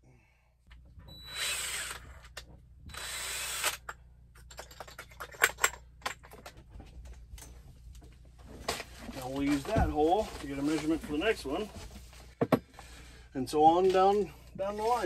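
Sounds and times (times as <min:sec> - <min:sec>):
cordless drill running: 0:01.1 - 0:04.0
drill chuck ratcheting clicks: 0:01.2 - 0:04.0.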